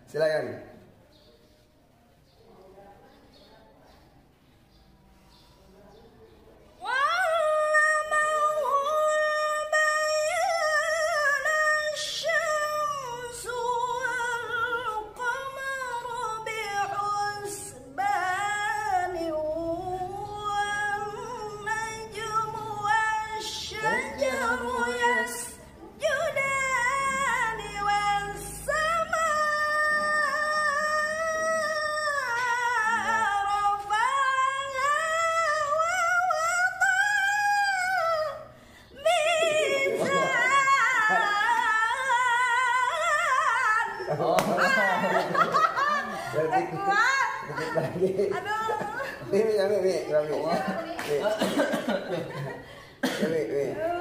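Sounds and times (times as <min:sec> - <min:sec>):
woman chanting recitation: 0:06.6 - 0:49.4.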